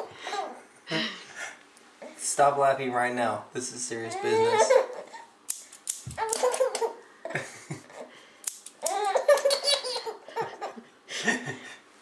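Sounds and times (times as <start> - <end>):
baby giggling: 0.0 - 0.6, 4.2 - 5.3, 6.2 - 8.1, 8.8 - 10.9.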